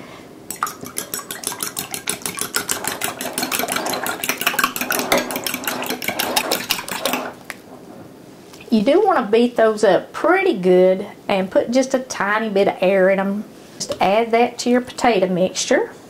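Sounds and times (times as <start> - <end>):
whisk clicking against ceramic bowl: 0.5 - 7.4.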